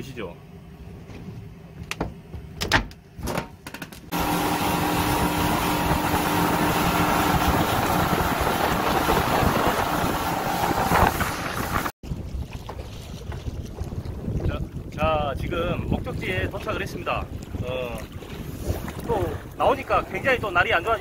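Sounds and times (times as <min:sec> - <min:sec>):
wind: 0:00.0 - 0:21.0
outboard motor droning: 0:04.1 - 0:11.9
rushing water: 0:04.1 - 0:15.0.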